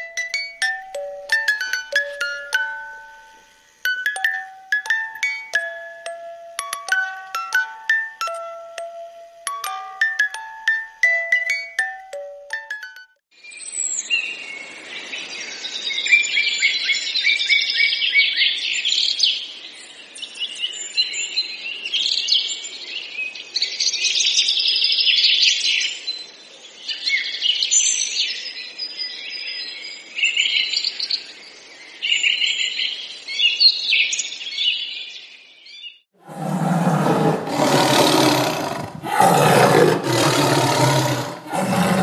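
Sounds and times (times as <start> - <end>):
songbirds chirping and trilling: 13.4 - 42.0.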